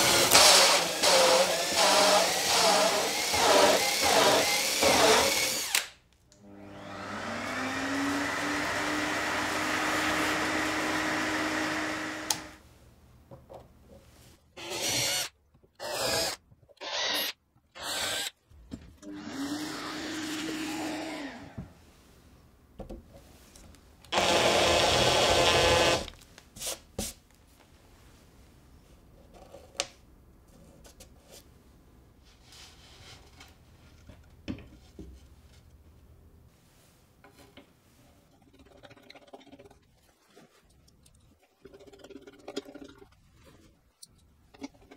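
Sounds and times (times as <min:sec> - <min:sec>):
cordless drill boring: 0:00.0 - 0:05.9, 0:06.6 - 0:12.6, 0:14.6 - 0:18.3, 0:24.2 - 0:26.1.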